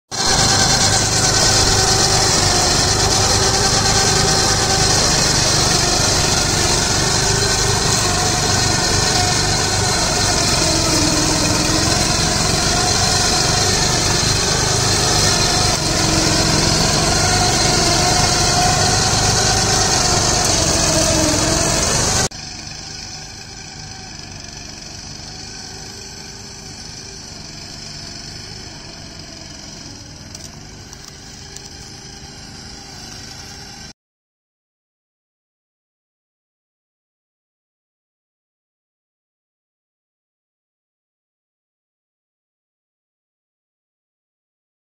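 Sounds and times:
small petrol engines droning: 0:00.1 - 0:34.0.

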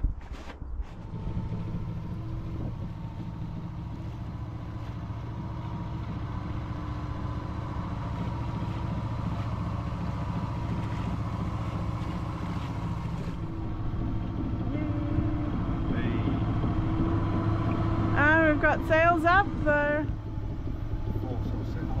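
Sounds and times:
boat engine humming: 0:00.8 - 0:22.0.

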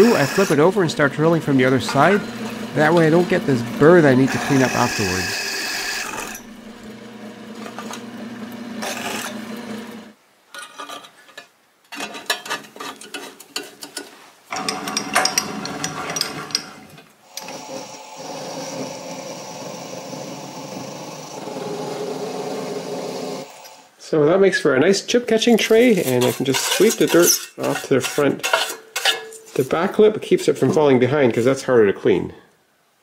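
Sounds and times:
sheet metal scraping: 0:00.0 - 0:06.6, 0:25.6 - 0:30.8
metal lathe humming: 0:00.0 - 0:10.1, 0:14.5 - 0:23.8
drill press humming: 0:00.0 - 0:10.2, 0:14.5 - 0:23.8.

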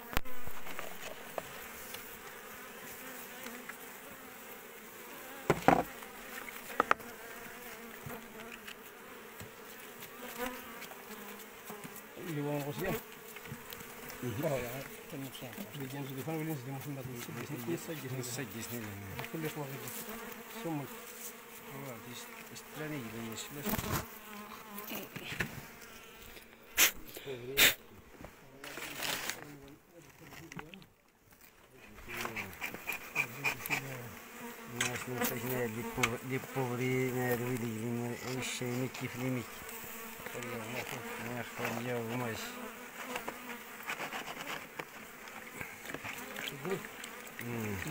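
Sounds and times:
bees buzzing: 0:00.0 - 0:29.2, 0:31.8 - 0:47.9
tool knocking and scraping: 0:05.5 - 0:05.9, 0:43.1 - 0:45.0.

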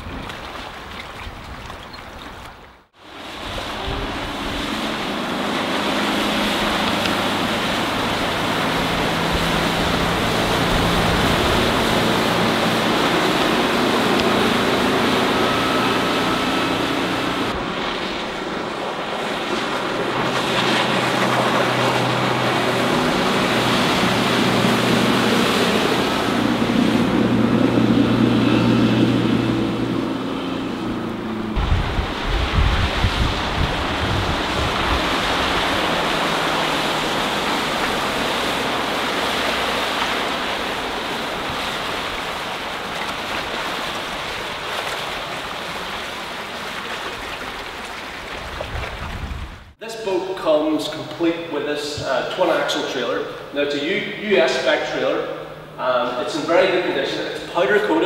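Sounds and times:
wind rumble on microphone: 0:00.0 - 0:14.4, 0:22.8 - 0:39.5, 0:47.2 - 0:49.8
boat engine drone: 0:00.0 - 0:58.0
rush of boat wake: 0:00.0 - 0:58.0.

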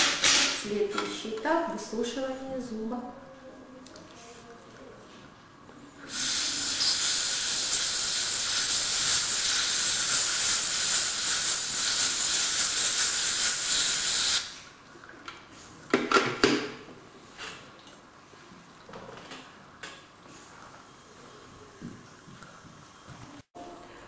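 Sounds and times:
compressed air hissing: 0:06.1 - 0:14.6.

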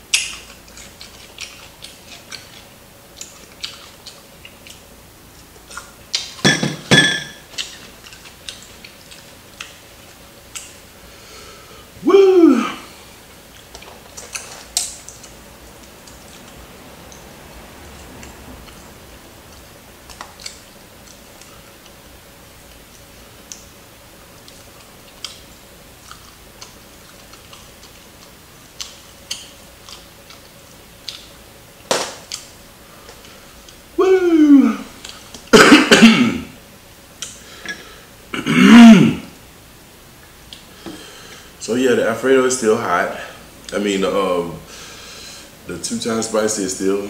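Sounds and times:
man chewing: 0:00.0 - 0:06.4, 0:07.4 - 0:39.0, 0:40.1 - 0:41.6
man coughing: 0:12.0 - 0:12.9, 0:35.5 - 0:36.5, 0:38.3 - 0:39.3
man grunting: 0:12.0 - 0:13.0, 0:34.0 - 0:34.9, 0:36.0 - 0:36.5.

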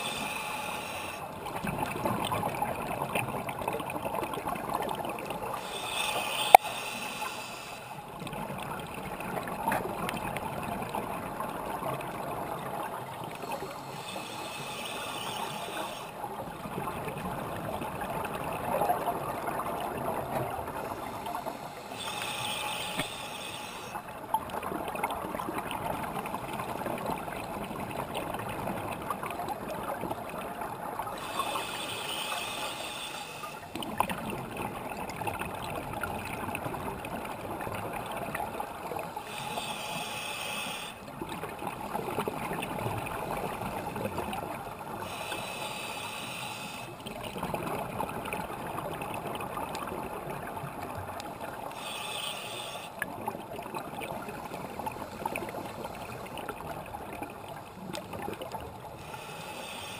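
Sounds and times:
hissing regulator inhalation: 0:00.0 - 0:01.2, 0:05.6 - 0:08.0, 0:13.4 - 0:16.2, 0:21.0 - 0:24.0, 0:31.2 - 0:33.7, 0:39.2 - 0:41.0, 0:45.0 - 0:47.0, 0:51.7 - 0:53.0, 0:59.0 - 0:59.9.

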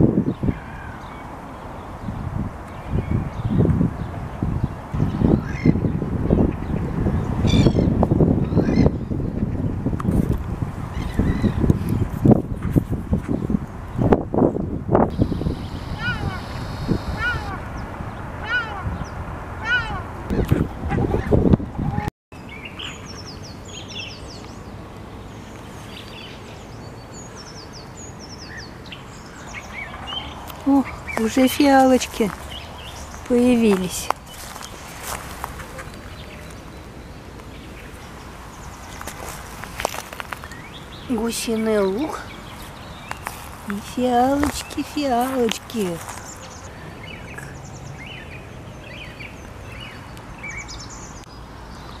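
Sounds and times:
songbirds chirping and trilling: 0:00.0 - 0:52.0
songbirds whistling and chirping: 0:15.1 - 0:20.5, 0:22.4 - 0:24.8, 0:45.9 - 0:52.0.

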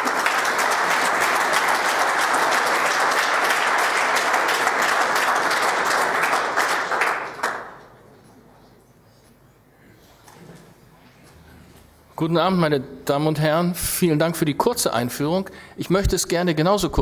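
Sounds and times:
audience applauding: 0:00.0 - 0:07.9.

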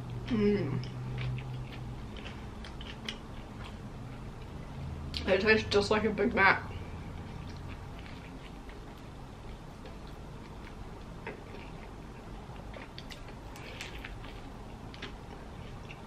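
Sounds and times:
person chewing: 0:00.8 - 0:04.6, 0:07.1 - 0:16.0.

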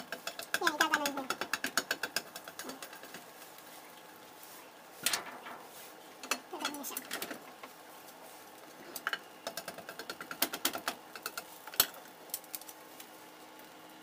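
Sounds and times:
chopsticks tapping on a pan: 0:00.0 - 0:03.3, 0:09.0 - 0:12.0.

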